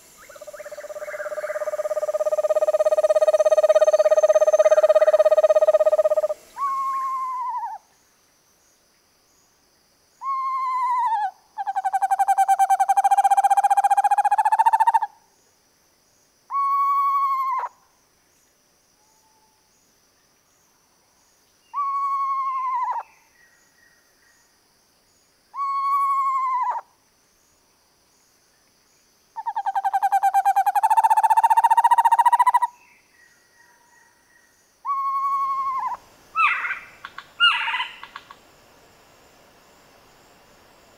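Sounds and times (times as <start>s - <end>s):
owl long trills: 0.2s - 7.9s, 10.2s - 15.2s, 16.5s - 17.8s, 21.7s - 23.1s, 25.5s - 26.9s, 29.4s - 32.8s, 34.8s - 38.4s
owl descending whinnies: 1.6s - 7.8s, 10.2s - 15.1s, 29.4s - 32.7s, 34.8s - 36.8s.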